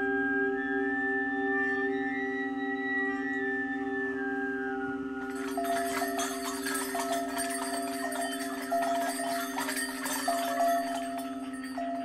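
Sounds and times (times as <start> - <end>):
metallic chime-like strikes: 5.2 - 12.0.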